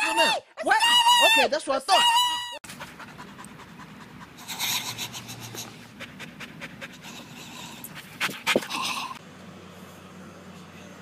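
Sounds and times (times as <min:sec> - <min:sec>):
dog panting: 0:02.6 - 0:09.2.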